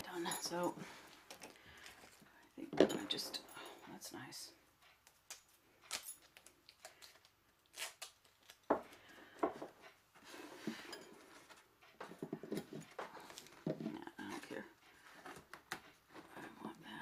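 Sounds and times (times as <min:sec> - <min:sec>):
tape rustling: 0:04.8 - 0:09.2.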